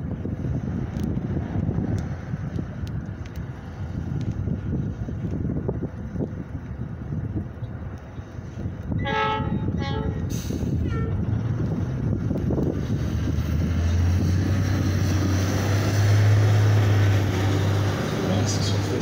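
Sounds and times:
approaching train rumble: 0:00.0 - 0:19.0
train horn blasts: 0:09.0 - 0:11.3.

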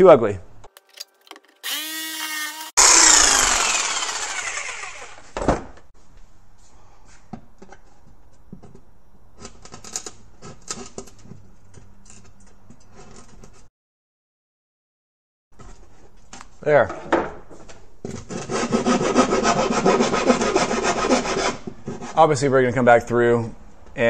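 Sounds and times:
jigsaw cutting plywood: 0:01.6 - 0:05.4
hand file scraping wood: 0:18.2 - 0:22.4.

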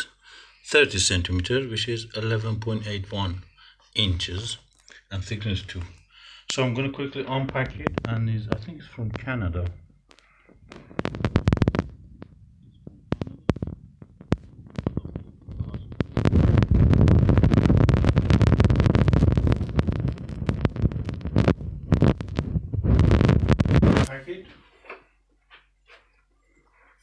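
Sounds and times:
low scraping and crackling: 0:04.0 - 0:24.8.

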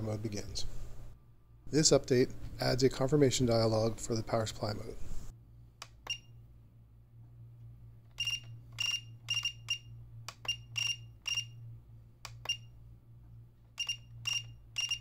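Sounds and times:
steady low hum: 0:00.0 - 0:15.0
short high beeps: 0:08.2 - 0:09.9, 0:10.5 - 0:11.6, 0:13.8 - 0:15.0.

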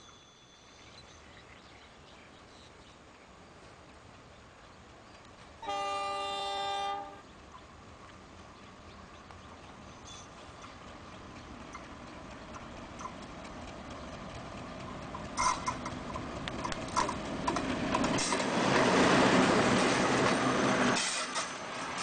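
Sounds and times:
diesel locomotive engine: 0:00.0 - 0:22.0
train coaches passing: 0:03.0 - 0:22.0
wheels clicking over rail joints: 0:07.4 - 0:22.0.

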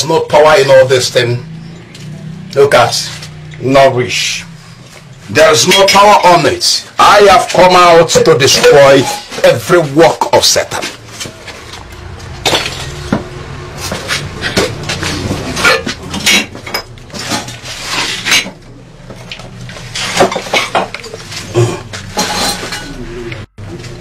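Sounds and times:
objects smashing and crashing: 0:12.2 - 0:18.6, 0:19.8 - 0:23.0.

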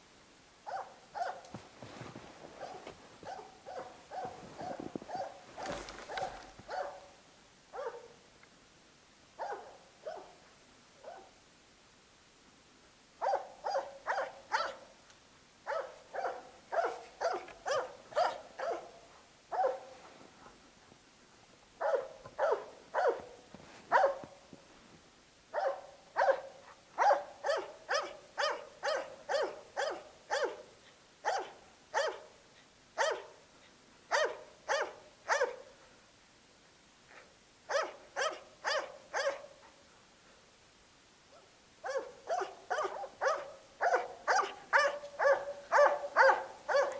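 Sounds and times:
dog barking sharply: 0:34.1 - 0:35.6, 0:37.7 - 0:39.4, 0:41.9 - 0:46.9.

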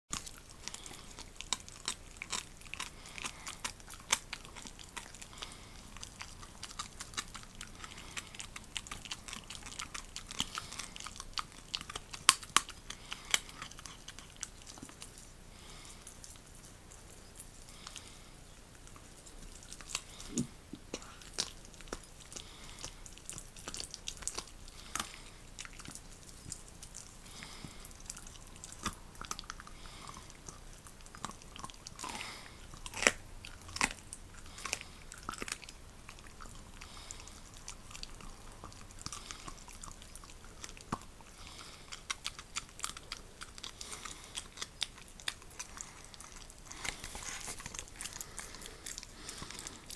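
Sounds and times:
dog chewing bone: 0:00.1 - 0:49.9.

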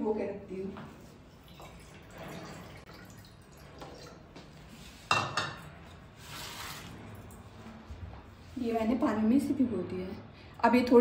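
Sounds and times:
water trickling: 0:01.3 - 0:04.5.

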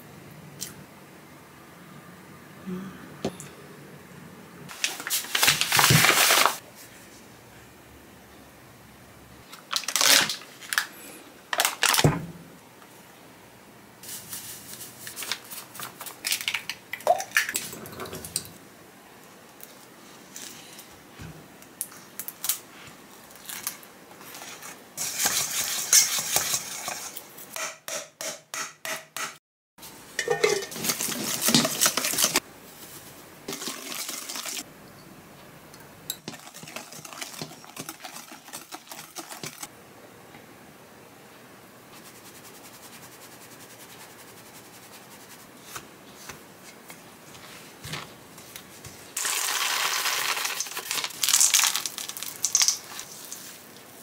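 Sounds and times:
plastic bag crinkling: 0:04.7 - 0:06.6, 0:09.6 - 0:10.9, 0:11.5 - 0:12.0, 0:49.2 - 0:53.6
whisk scraping metal bowl: 0:24.3 - 0:27.2, 0:30.3 - 0:32.4, 0:36.2 - 0:39.7.

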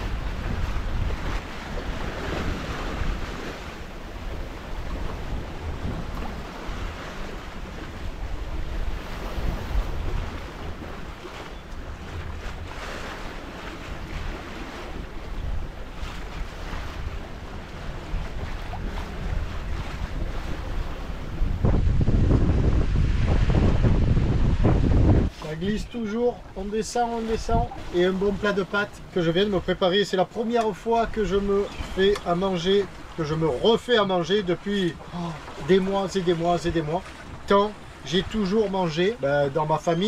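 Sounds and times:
wind buffeting microphone: 0:00.0 - 0:29.8
water splashing along a hull: 0:00.0 - 0:40.0.

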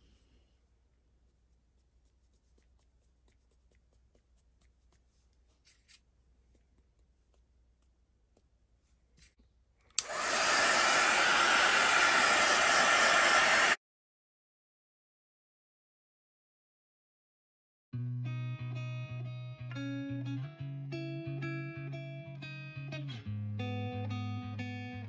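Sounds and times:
electric dryer blowing: 0:10.0 - 0:13.8.

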